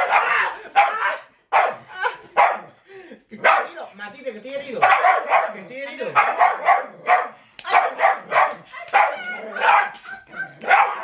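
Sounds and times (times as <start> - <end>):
small dog barking rapidly: 0.0 - 1.8, 3.4 - 3.7, 4.8 - 11.0.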